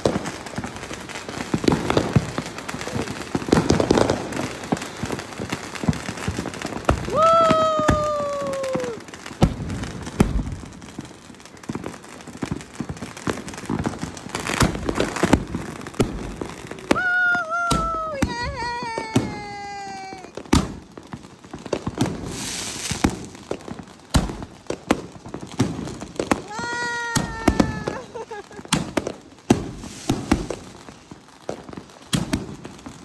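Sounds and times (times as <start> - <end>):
firework hiss: 0.0 - 33.0
fireworks bangs and pops: 0.0 - 33.0
descending firework whistles: 5.8 - 10.7, 13.7 - 20.8.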